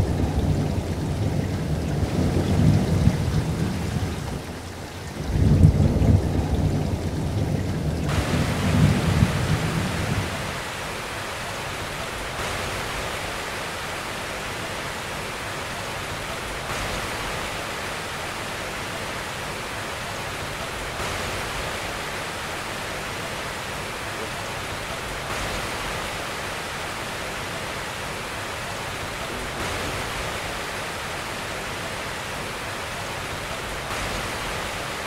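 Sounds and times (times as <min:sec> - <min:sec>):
thunder rumbling: 0:00.0 - 0:10.7
heavy rain falling: 0:00.0 - 0:35.0.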